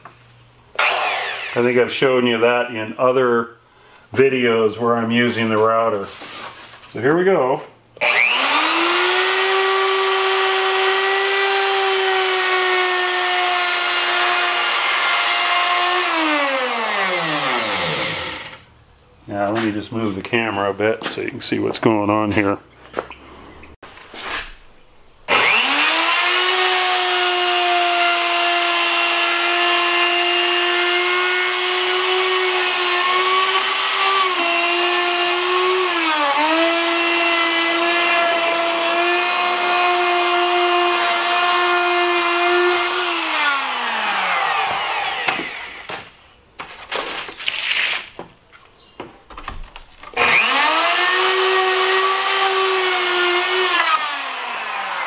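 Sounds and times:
electric router whining: 0.8s - 1.8s, 8.0s - 18.7s, 25.3s - 46.1s, 50.1s - 55.0s.

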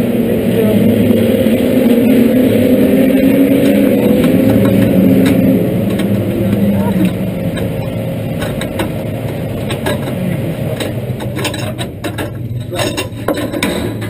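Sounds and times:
low rumble: 0.0s - 14.0s
harness buckles clicking and rattling: 3.6s - 14.0s.

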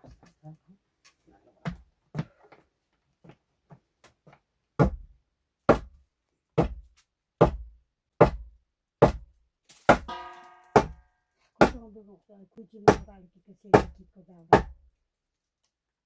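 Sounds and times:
hammer knocking on wood: 4.8s - 5.1s, 6.6s - 9.2s, 9.9s - 11.0s.

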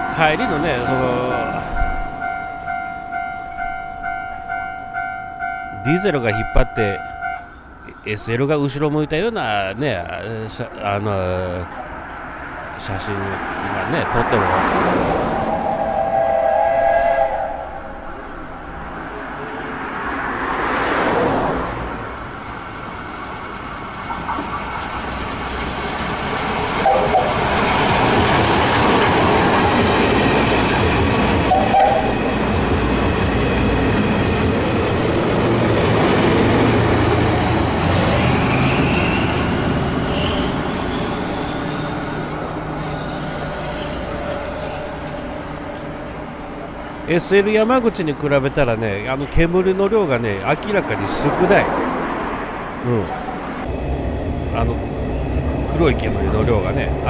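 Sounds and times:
rising whine: 14.7s - 20.0s
steam train whistle chord: 15.3s - 17.9s, 31.5s - 32.2s
train wheels clickety-clack on rail: 21.9s - 38.2s.

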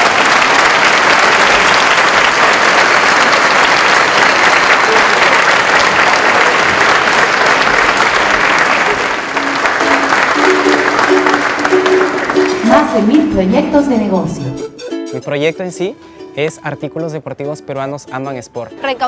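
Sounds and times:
audience applauding: 0.0s - 13.9s.

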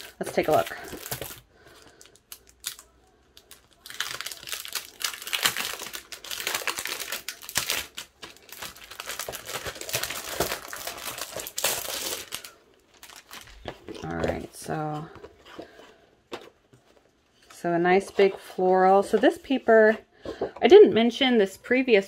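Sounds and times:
plastic packaging crinkling: 0.0s - 17.1s.

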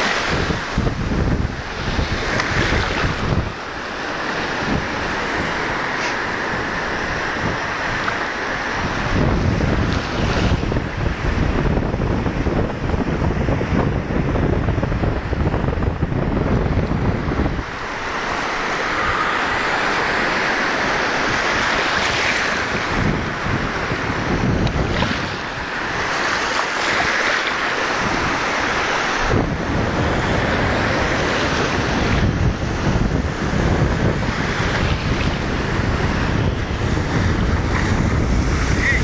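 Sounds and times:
small waves breaking: 0.0s - 11.0s, 17.2s - 39.0s
wind buffeting microphone: 0.0s - 39.0s.

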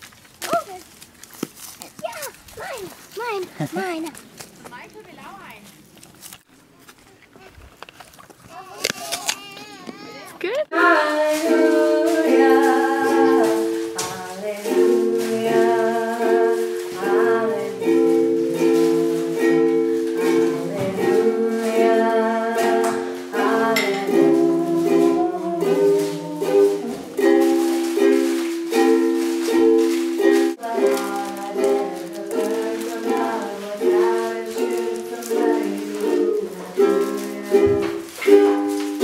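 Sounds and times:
ukulele strumming chords: 10.7s - 39.0s.

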